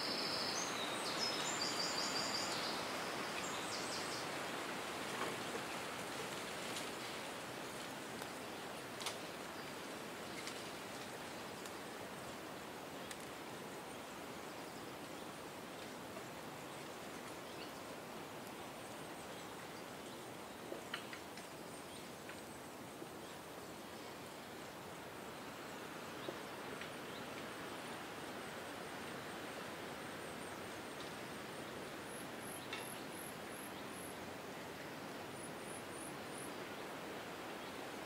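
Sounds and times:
wind through foliage: 0.0s - 38.0s.

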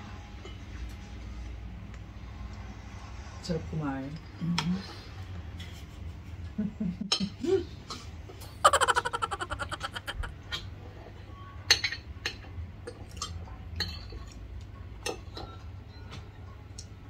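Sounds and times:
cutlery clinking on plates: 11.7s - 14.4s, 15.0s - 16.2s.

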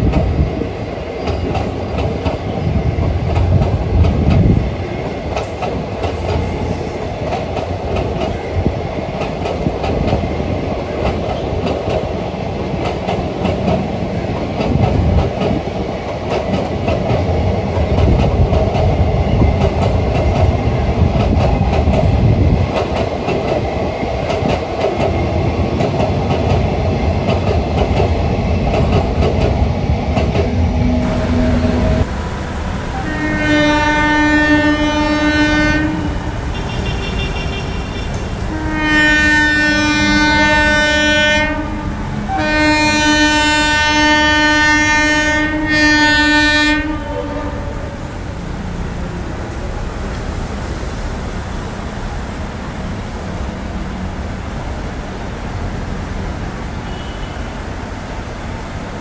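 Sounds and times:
train rumbling on rails: 0.0s - 59.0s
locomotive horn blasts: 30.9s - 32.1s, 33.0s - 47.8s, 56.8s - 57.6s.

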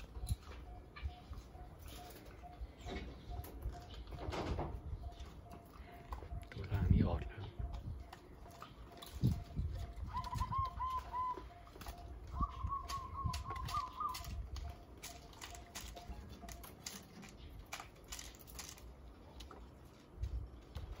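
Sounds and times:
doves cooing: 0.0s - 21.0s
sharp clicks: 11.7s - 19.5s.

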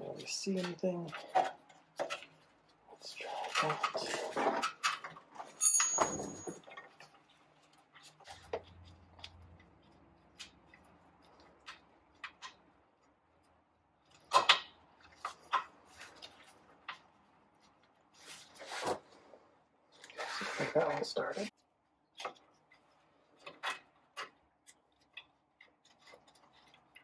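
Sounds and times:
hand tools clicking and knocking: 3.4s - 9.7s.

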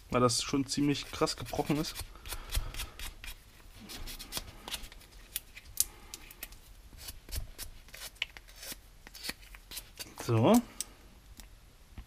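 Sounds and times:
hand file scraping: 0.9s - 5.0s, 7.0s - 10.4s.

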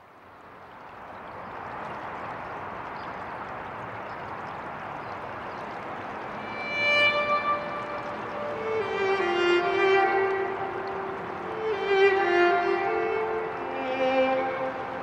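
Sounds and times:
violin: 6.2s - 15.0s.

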